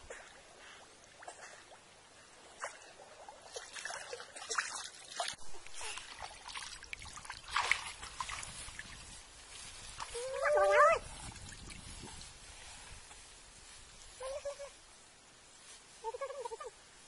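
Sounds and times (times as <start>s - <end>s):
muddy water splashing and trickling: 0.0s - 13.3s
water dripping: 1.0s - 9.2s.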